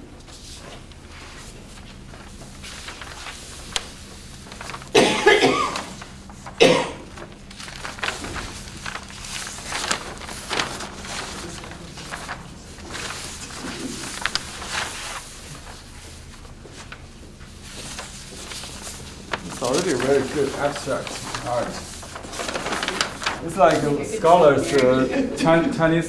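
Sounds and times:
paper rustling: 0.2s - 25.1s
person coughing: 4.9s - 6.0s, 6.6s - 7.1s.

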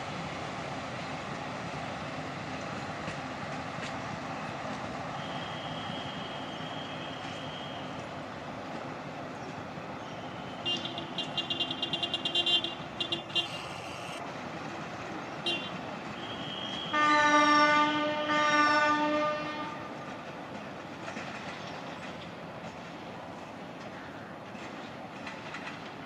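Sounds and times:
steady train rumble: 0.0s - 26.0s
train wheels squealing and clicking: 4.7s - 8.2s, 9.4s - 12.2s, 16.0s - 17.0s, 20.0s - 26.0s
train horn blasts: 5.2s - 7.9s, 10.2s - 14.1s, 15.5s - 19.9s.

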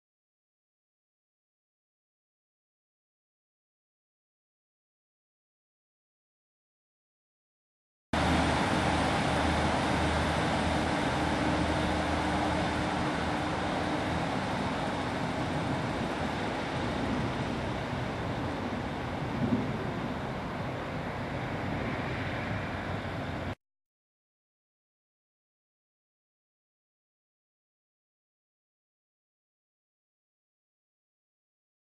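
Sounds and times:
diesel train engine running: 8.2s - 23.6s.

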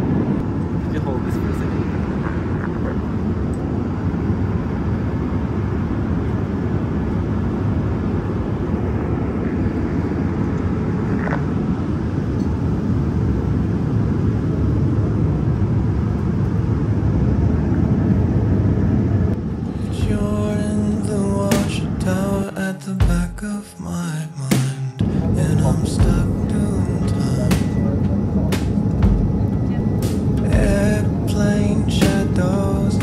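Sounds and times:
airliner cabin rumble: 0.0s - 33.0s
music: 19.6s - 33.0s.

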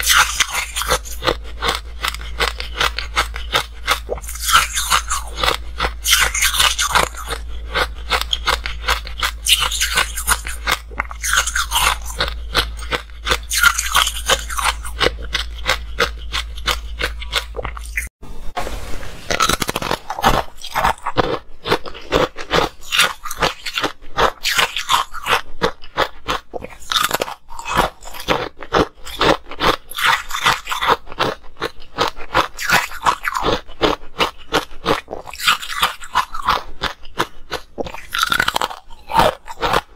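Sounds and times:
ice crunching being chewed: 0.0s - 18.1s, 19.3s - 39.9s
low steady hum: 0.0s - 24.4s.

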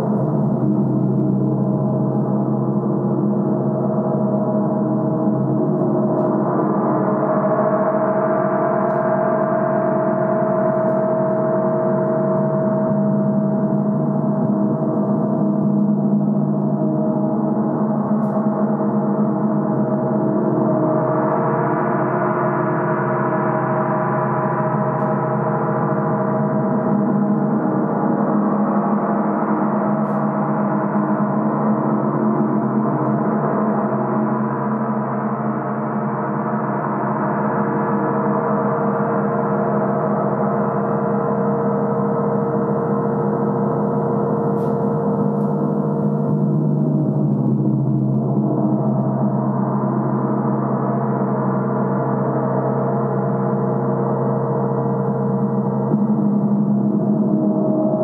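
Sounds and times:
gong sounding continuously: 42.9s - 58.0s.

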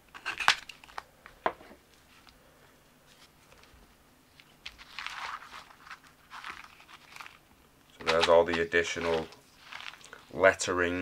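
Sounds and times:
cardboard rustling and scraping: 4.6s - 7.4s, 8.0s - 10.5s.

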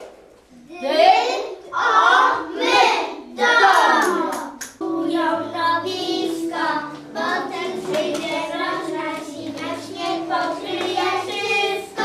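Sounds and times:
children's voices in unison: 0.7s - 4.6s, 5.6s - 12.0s
children's song with music: 3.4s - 12.0s.

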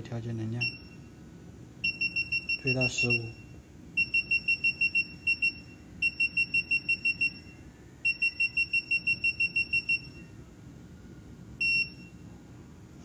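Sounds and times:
high single-pitched beeps: 1.8s - 10.2s.

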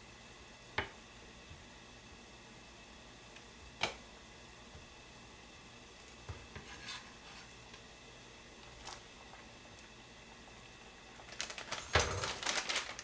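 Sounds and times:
plastic packaging crinkling: 11.1s - 13.0s.

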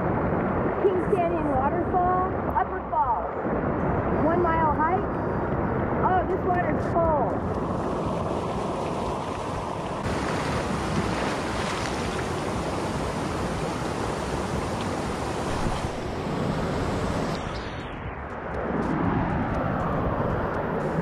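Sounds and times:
creek water rushing over rocks: 7.6s - 17.4s.

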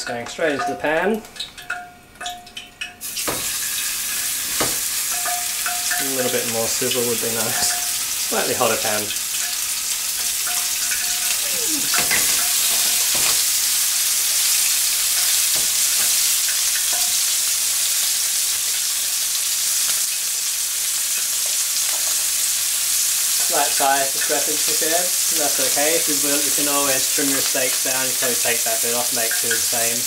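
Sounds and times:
steaks sizzling in a frying pan: 2.6s - 30.0s.

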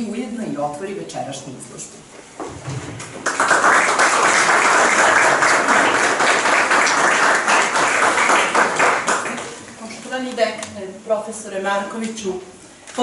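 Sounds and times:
audience applauding: 3.0s - 9.6s.

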